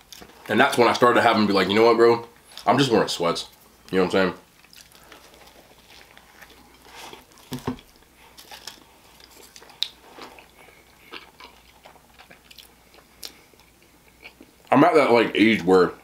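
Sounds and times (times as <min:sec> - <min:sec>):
chewing sandwich: 0:04.5 - 0:14.7.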